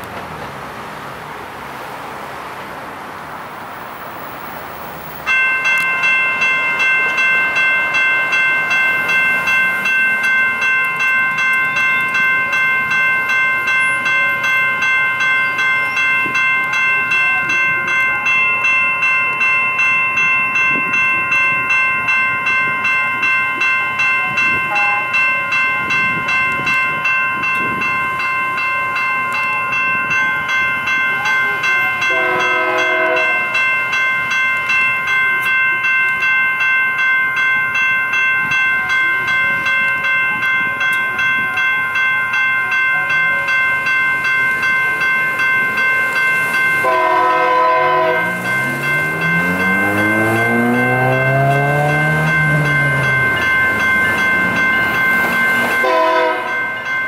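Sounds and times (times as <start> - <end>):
railroad crossing bells ringing: 0.0 - 57.0
locomotive air horn: 32.1 - 33.4, 46.8 - 48.4, 55.8 - 56.6.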